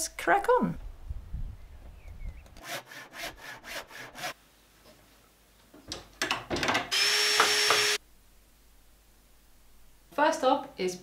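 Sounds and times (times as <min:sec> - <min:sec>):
hand saw cutting timber: 0:02.6 - 0:04.4.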